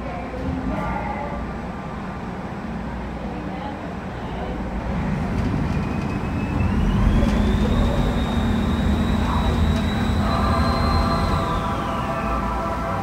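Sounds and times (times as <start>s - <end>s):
boat engines rumbling: 4.1s - 13.0s
high whine: 5.6s - 13.0s.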